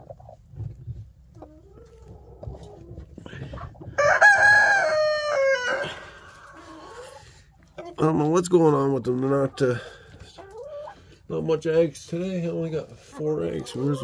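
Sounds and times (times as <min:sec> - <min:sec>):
chickens clucking softly: 0:00.0 - 0:08.4, 0:09.1 - 0:11.3, 0:12.1 - 0:14.0
rooster crowing: 0:04.0 - 0:06.1.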